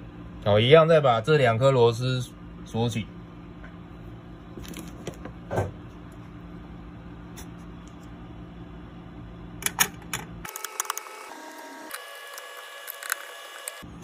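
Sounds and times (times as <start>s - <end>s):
steady low hum: 0.0s - 10.5s.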